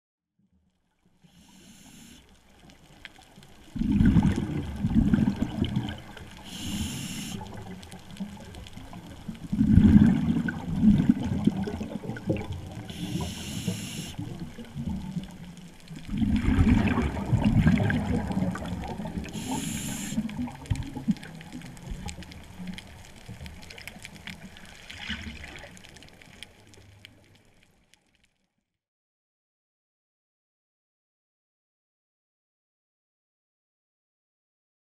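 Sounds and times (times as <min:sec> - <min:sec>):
brief hiss: 0:01.3 - 0:02.3, 0:06.5 - 0:07.5, 0:12.9 - 0:14.2, 0:19.3 - 0:20.2
underwater bubbles rushing: 0:01.3 - 0:27.5.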